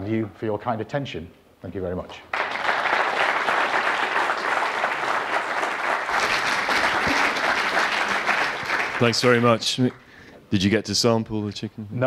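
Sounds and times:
audience applauding: 0:02.3 - 0:10.0.

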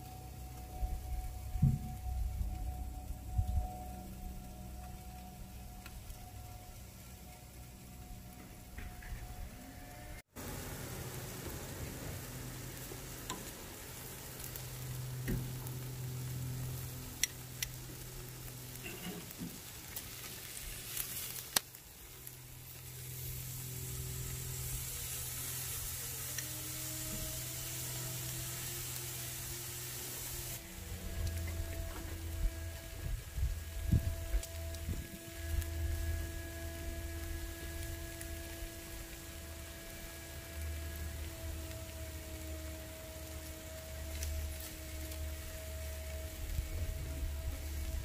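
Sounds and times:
steak sizzling on grill: 0:10.3 - 0:48.0.

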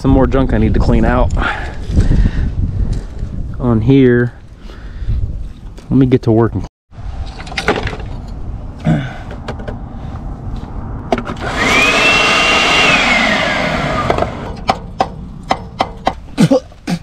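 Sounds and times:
leaf blower motor whining: 0:11.3 - 0:14.6
sharp clicks and knocks: 0:14.1 - 0:16.2.

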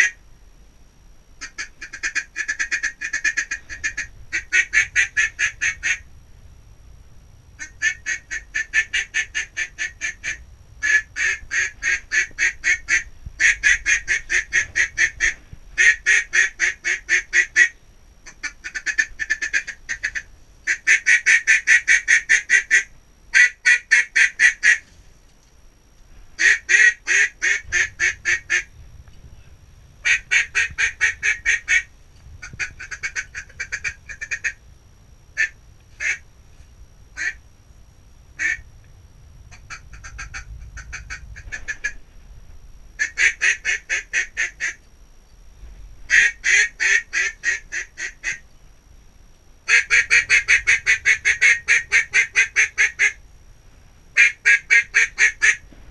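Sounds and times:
duck call quacking: 0:01.4 - 0:06.0, 0:07.6 - 0:24.8, 0:26.4 - 0:28.7, 0:30.0 - 0:31.9, 0:32.5 - 0:34.6, 0:35.4 - 0:36.2, 0:37.2 - 0:37.4, 0:38.4 - 0:38.6, 0:39.5 - 0:42.0, 0:43.0 - 0:44.8, 0:46.1 - 0:48.4, 0:49.7 - 0:53.2, 0:54.2 - 0:55.6.

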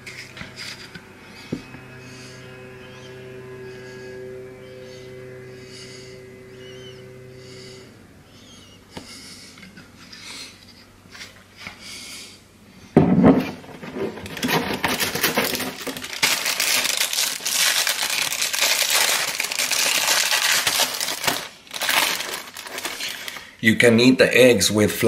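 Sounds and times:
thump: 0:13.0 - 0:13.6
plastic crinkling and rustling: 0:13.6 - 0:23.5.

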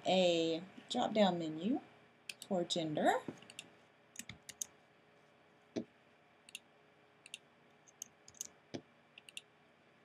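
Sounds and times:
keyboard and mouse clicks: 0:02.3 - 0:02.5, 0:03.3 - 0:04.7, 0:06.5 - 0:09.5.

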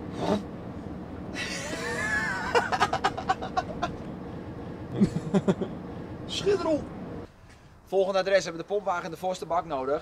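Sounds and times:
truck cab noise: 0:00.0 - 0:07.8.

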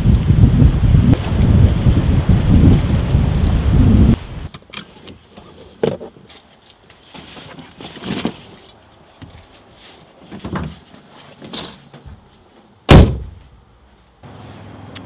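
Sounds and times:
soft bumps and shuffles: 0:04.9 - 0:14.7
car door slamming shut: 0:12.9 - 0:13.4.

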